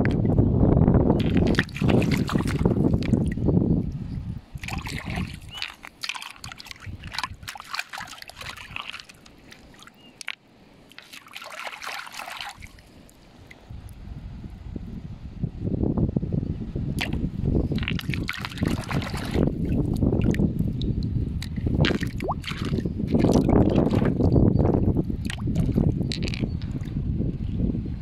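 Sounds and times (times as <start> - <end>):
river water splashing: 1.2 - 13.8, 17.0 - 20.5, 21.4 - 24.3
stones clicking: 7.9 - 11.2, 26.1 - 26.8.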